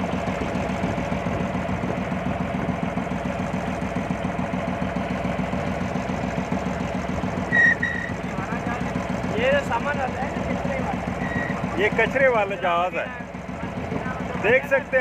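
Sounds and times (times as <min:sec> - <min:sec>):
boat engine running steadily: 0:00.0 - 0:15.0
high whistle-like tone: 0:07.5 - 0:08.2.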